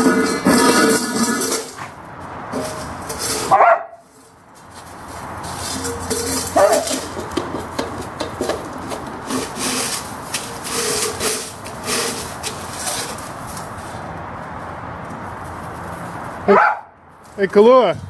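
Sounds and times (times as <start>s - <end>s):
metal bowl scraping over gravel: 0.0s - 14.1s.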